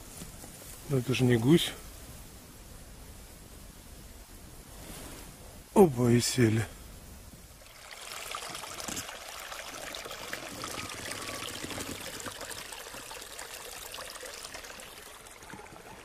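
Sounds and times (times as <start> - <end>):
water trickling and gurgling: 7.6 - 16.0.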